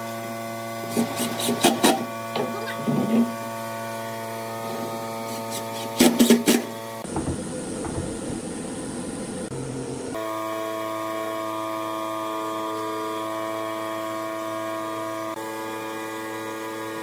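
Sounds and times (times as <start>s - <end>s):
impact driver driving screws: 0.9s - 2.5s.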